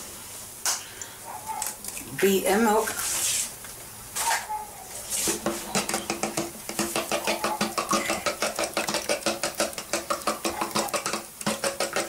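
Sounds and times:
whisk clicking against bowl: 5.4s - 12.0s.

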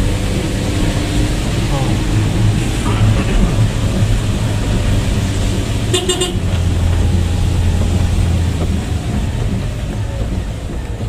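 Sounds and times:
vehicle engine and road noise: 0.0s - 11.0s
car horn toot: 5.8s - 6.8s.

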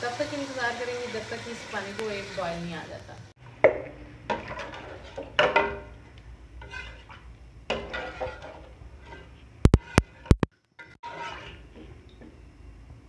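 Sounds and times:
metal pot and utensils clanking: 4.3s - 12.2s.

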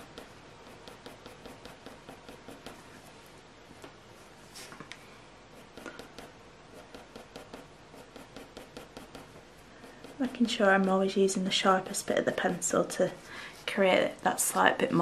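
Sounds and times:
pencil scratching on paper: 0.0s - 3.1s, 5.5s - 12.9s.

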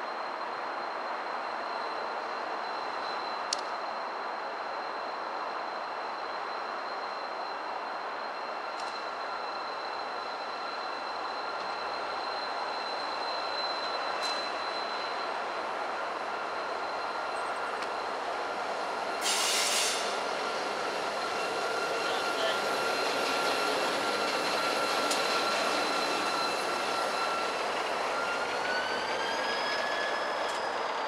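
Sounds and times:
diesel locomotive rolling: 0.0s - 31.0s
high-pitched wheel squeal: 8.4s - 15.4s, 19.1s - 31.0s
brief hiss: 19.2s - 20.2s.

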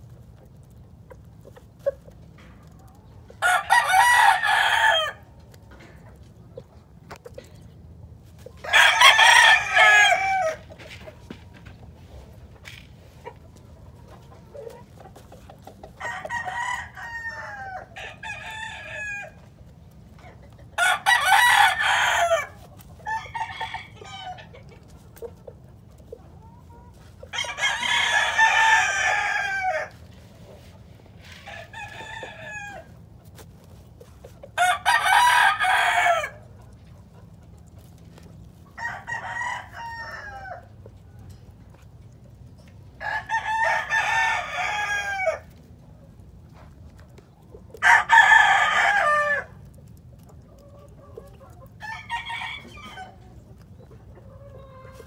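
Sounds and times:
roosters crowing: 3.3s - 5.5s, 8.4s - 12.9s, 14.2s - 25.0s, 26.4s - 36.8s, 38.2s - 45.7s, 47.8s - 49.9s, 50.6s - 55.0s.

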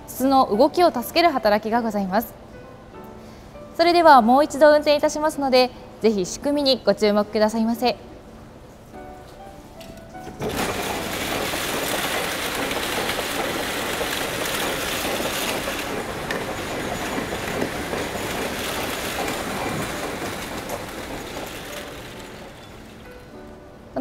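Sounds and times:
spinning machine rattling: 10.4s - 23.4s.

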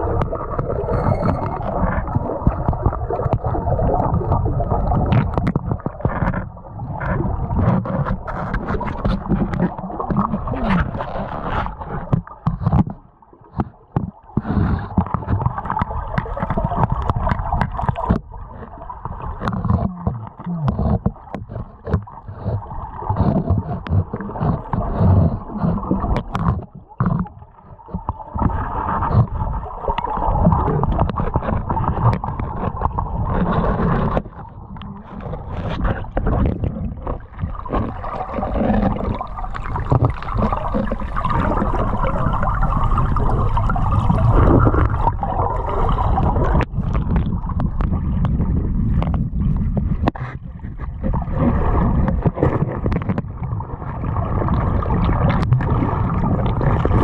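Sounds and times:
muffled creek water rushing: 14.0s - 57.0s.

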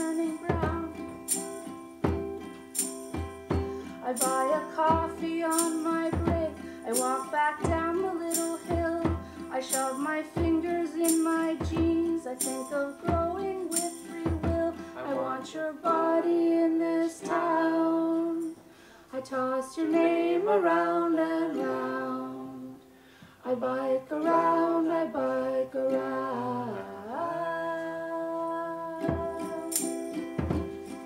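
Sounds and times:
woman singing: 0.0s - 1.2s, 3.9s - 30.1s
tambourine strikes: 0.0s - 15.3s, 29.0s - 31.0s
ukulele: 0.0s - 31.0s.

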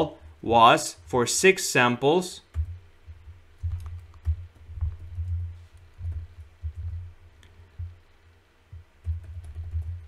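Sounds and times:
keyboard and mouse taps: 2.5s - 8.0s, 8.7s - 10.0s.

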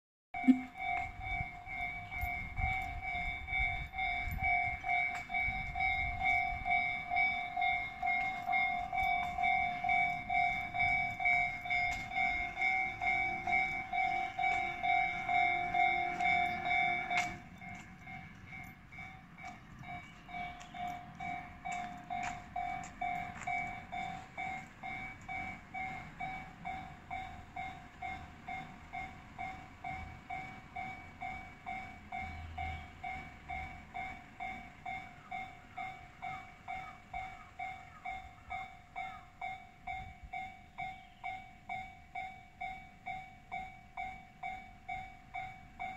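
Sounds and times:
level crossing electronic bell: 0.4s - 28.4s.

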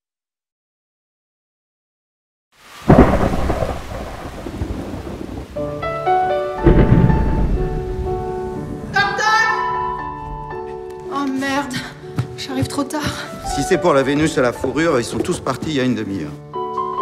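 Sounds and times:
steady rain: 2.6s - 9.3s
rolling thunderclap: 2.8s - 5.9s, 6.6s - 9.0s.

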